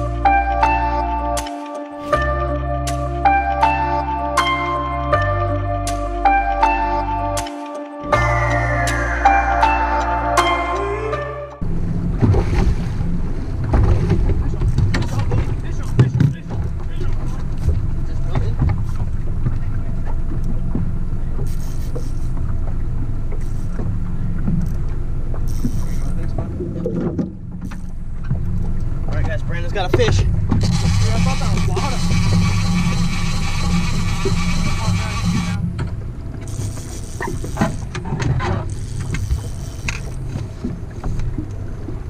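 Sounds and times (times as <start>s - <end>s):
boat motor rumbling: 0.0s - 1.4s, 8.0s - 42.0s
water against hull: 11.6s - 42.0s.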